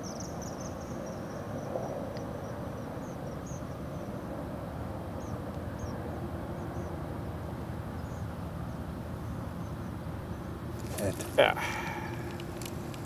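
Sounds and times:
low outdoor rumbling: 10.6 - 13.0.

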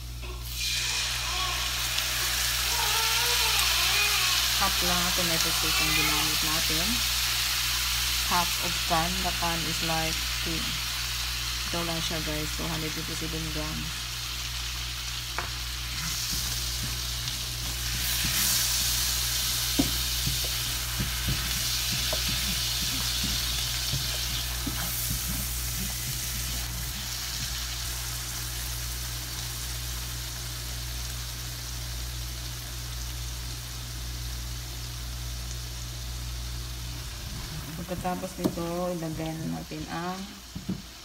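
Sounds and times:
sauce sizzling in a frying pan: 0.0 - 41.0
spoon tapping and scraping pan: 19.8 - 26.2.

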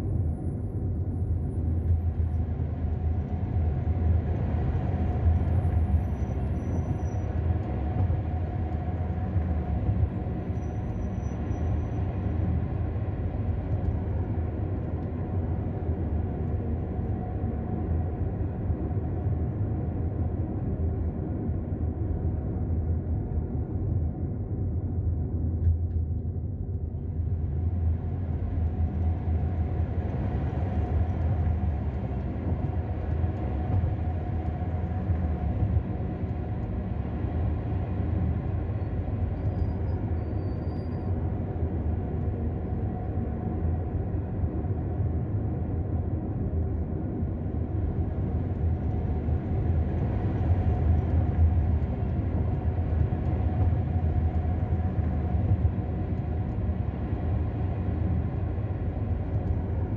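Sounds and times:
car engine and tyres rumbling: 0.1 - 59.9.

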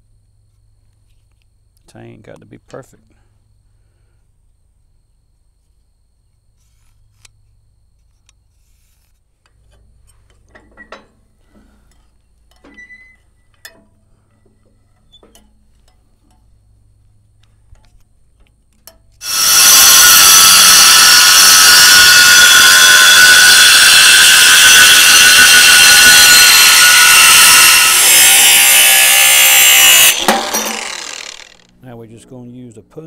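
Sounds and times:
loud power tool running: 19.2 - 31.8.

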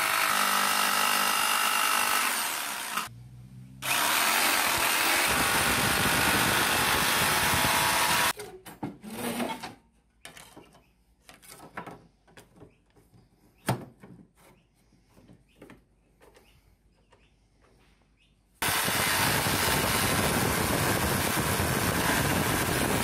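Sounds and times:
electric jigsaw cutting metal: 0.0 - 3.1, 3.8 - 8.4, 18.6 - 23.0.

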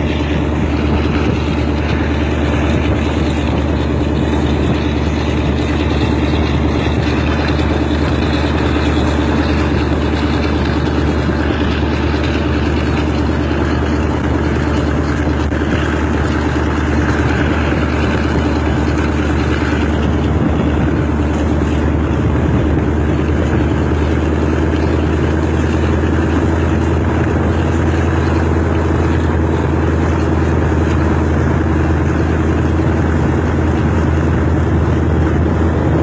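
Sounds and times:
diesel locomotive engine drone: 0.0 - 36.0
wheels on rails: 0.0 - 36.0
wind: 0.0 - 36.0.

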